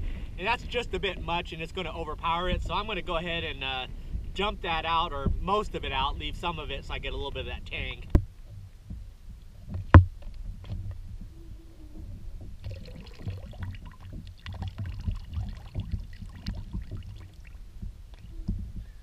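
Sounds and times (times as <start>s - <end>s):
low steady rumble: 0.0s - 19.0s
liquid trickling into the sea: 10.6s - 18.5s
faint splashing: 10.6s - 18.9s.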